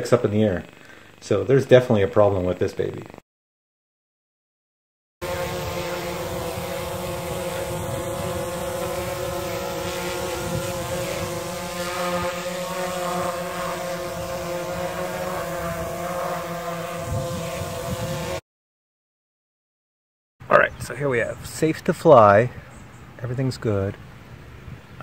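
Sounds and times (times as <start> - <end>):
drone propellers buzzing: 5.2 - 18.4.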